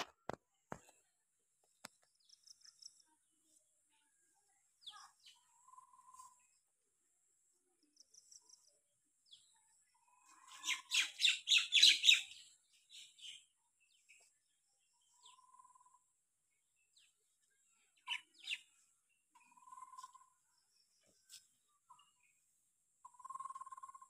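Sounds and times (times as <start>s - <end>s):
birds chirping and calling: 4.8s - 6.5s, 9.3s - 16.1s, 16.8s - 22.4s, 23.0s - 24.0s.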